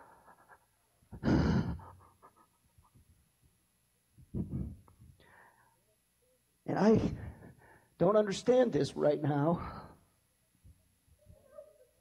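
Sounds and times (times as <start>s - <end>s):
person breathing heavily: 0.0s - 2.2s, 4.3s - 5.9s, 7.0s - 8.0s, 9.6s - 10.1s.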